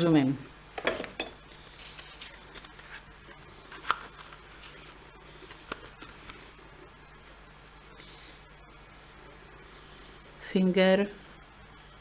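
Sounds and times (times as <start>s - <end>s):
plastic packaging rustling: 1.5s - 6.6s.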